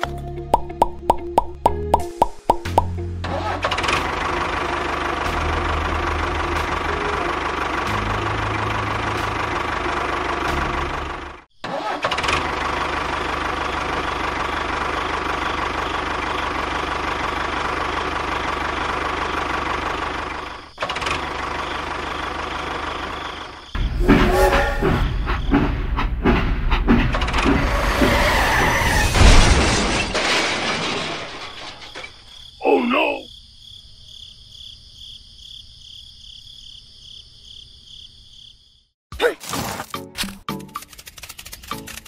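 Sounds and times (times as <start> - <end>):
tractor engine running: 0.0 - 27.9.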